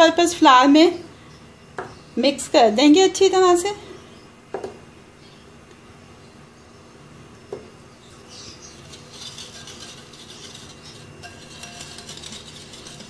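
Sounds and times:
whisk scraping glass bowl: 8.5s - 13.0s.

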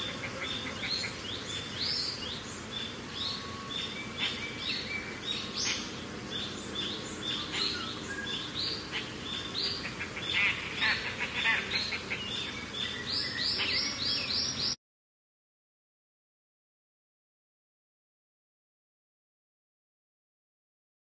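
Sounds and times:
faint low background noise: 0.0s - 14.8s
small birds chirping: 0.0s - 14.8s.

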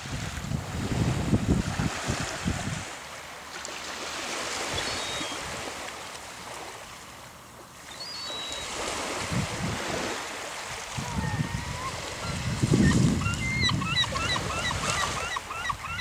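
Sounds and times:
wind buffeting microphone: 0.0s - 2.9s, 9.0s - 10.2s, 10.8s - 15.2s
surf washing on beach: 0.0s - 15.5s.

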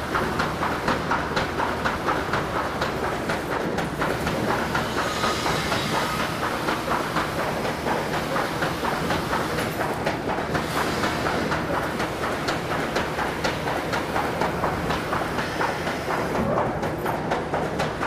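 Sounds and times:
rapid mechanical clatter: 0.0s - 18.0s.

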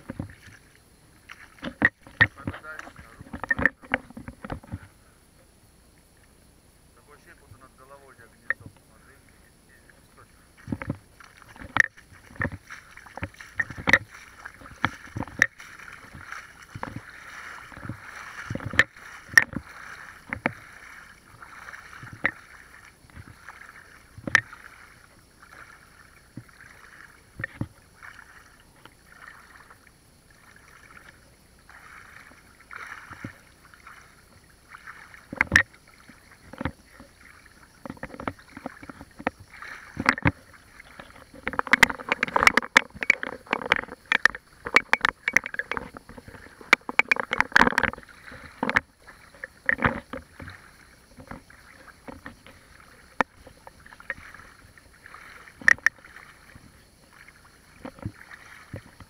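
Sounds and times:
feet wading through stream: 0.0s - 5.2s, 7.0s - 59.0s.

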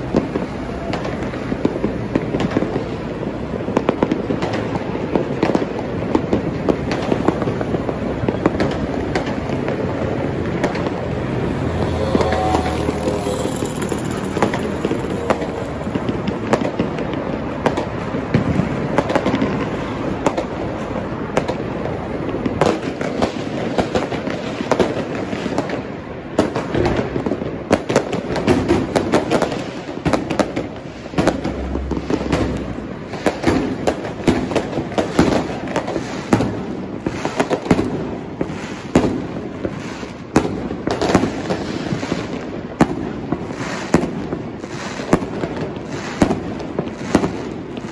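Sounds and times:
fireworks banging and crackling: 0.0s - 47.9s.

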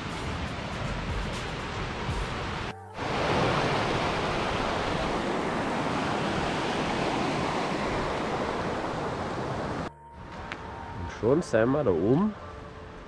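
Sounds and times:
mountain stream rushing: 0.0s - 10.5s.

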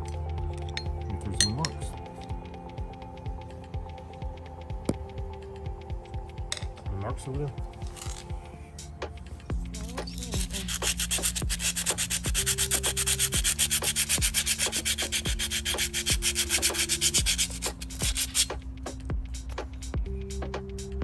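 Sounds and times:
sandpaper scrubbing on metal: 10.2s - 18.6s.

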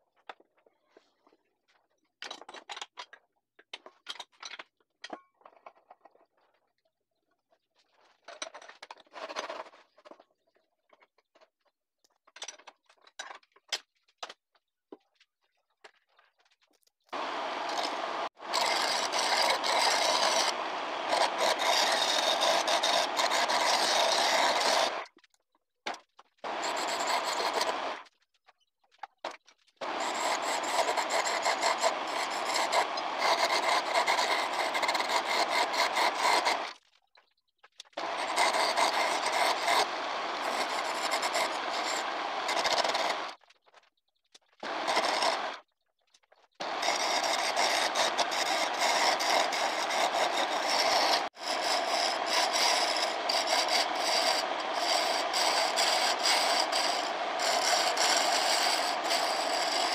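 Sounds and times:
chisel scraping wood on lathe: 17.2s - 25.0s, 26.5s - 28.0s, 29.8s - 36.7s, 38.0s - 43.4s, 44.6s - 45.6s, 46.6s - 59.9s.

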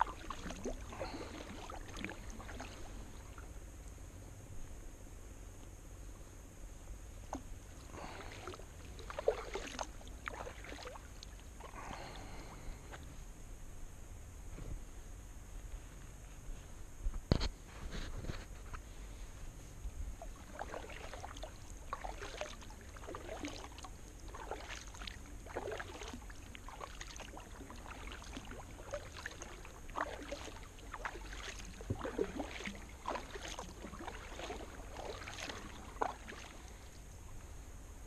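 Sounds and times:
paddle splashing water: 0.0s - 3.6s, 7.2s - 13.0s, 20.0s - 37.4s.

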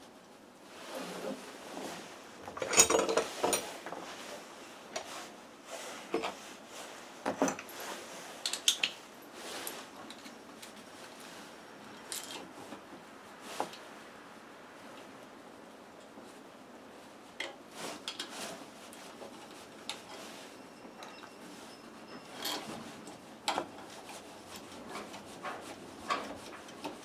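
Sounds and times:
metal tools clinking and knocking: 2.6s - 3.7s, 11.9s - 12.4s, 22.1s - 22.7s.

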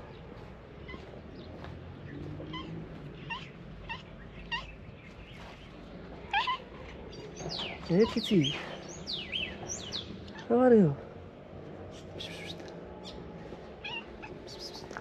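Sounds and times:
cat meowing: 13.8s - 14.4s.

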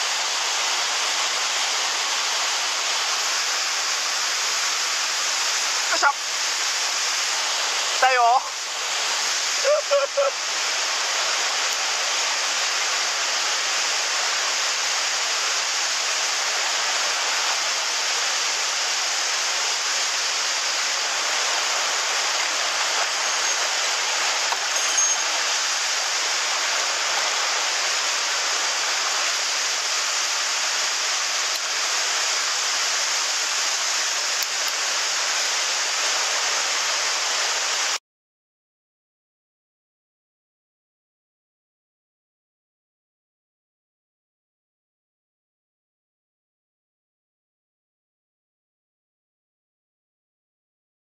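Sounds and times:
stream water rushing over rocks: 0.0s - 38.0s.

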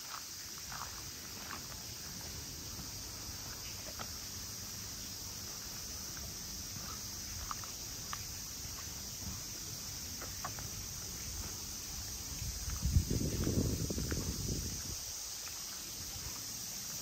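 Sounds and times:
footsteps walking: 0.0s - 4.2s
high hiss: 0.0s - 17.0s
faint ticks: 5.9s - 9.2s.

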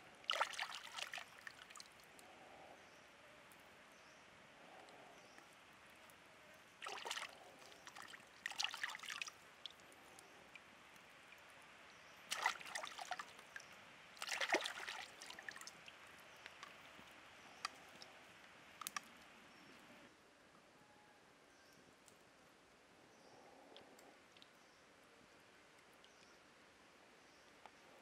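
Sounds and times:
stream trickling: 0.0s - 2.2s, 5.9s - 20.0s
hands splashing in water: 0.3s - 1.9s, 6.8s - 9.3s, 12.3s - 13.6s, 14.2s - 15.8s.

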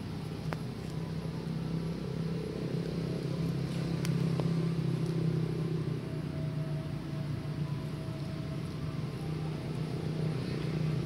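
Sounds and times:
low motor drone: 0.0s - 11.0s.

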